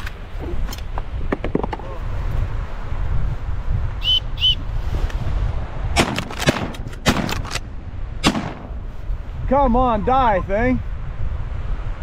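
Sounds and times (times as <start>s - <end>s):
shotgun blasts: 6.0s - 8.8s.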